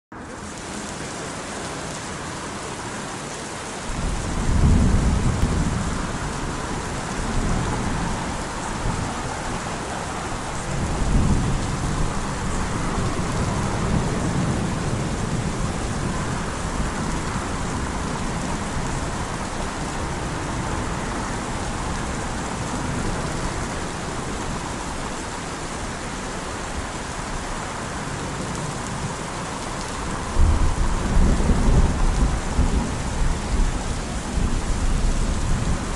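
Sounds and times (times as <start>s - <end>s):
steady rain falling: 0.1s - 35.9s
thunder rumbling: 3.9s - 27.5s, 28.1s - 35.9s.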